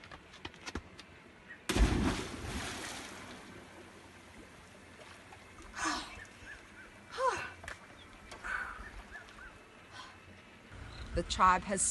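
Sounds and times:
person splashing into water: 1.7s - 3.5s.

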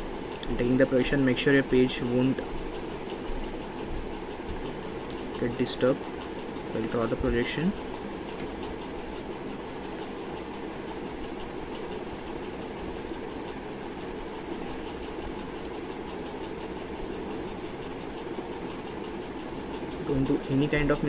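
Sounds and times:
steady mechanical hum: 0.0s - 21.0s.

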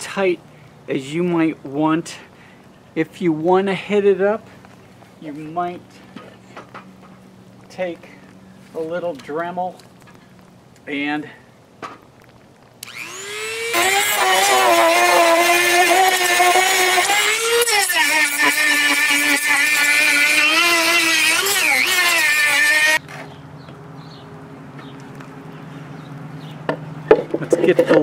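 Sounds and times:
rotary tool grinding wood: 12.8s - 23.0s.

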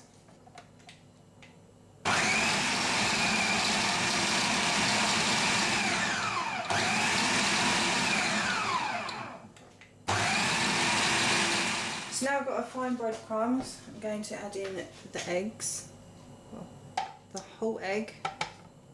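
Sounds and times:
food processor motor: 2.1s - 9.4s, 10.1s - 12.2s.

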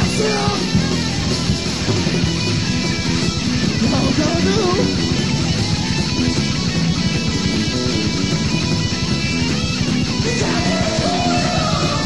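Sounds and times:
bent electric guitar notes: 0.0s - 12.0s
rock band playing heavy music: 0.0s - 12.0s.

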